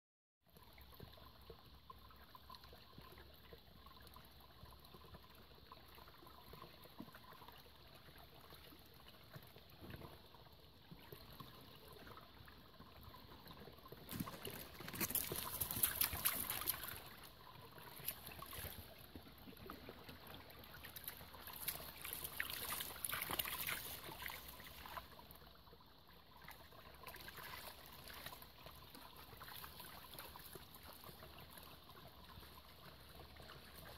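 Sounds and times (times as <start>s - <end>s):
stream trickling over stones: 0.5s - 33.9s.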